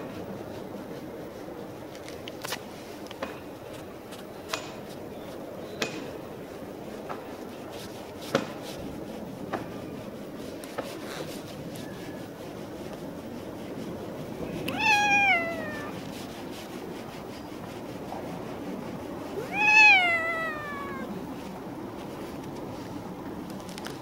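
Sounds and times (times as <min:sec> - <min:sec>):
cat meowing: 0:14.6 - 0:16.0, 0:19.4 - 0:21.2.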